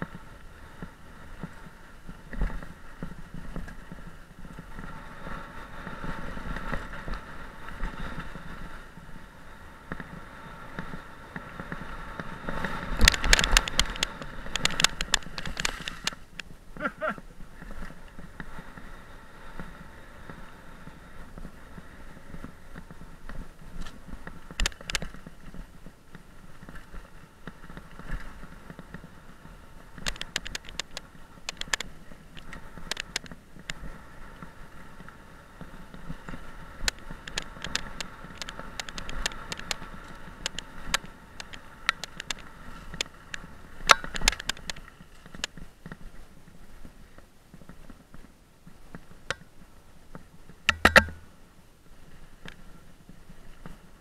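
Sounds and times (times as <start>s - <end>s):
bike tyre rolling on dirt: 0.0s - 54.0s
bike clicks and rattles: 9.9s - 18.6s, 21.3s - 46.1s, 50.5s - 51.3s.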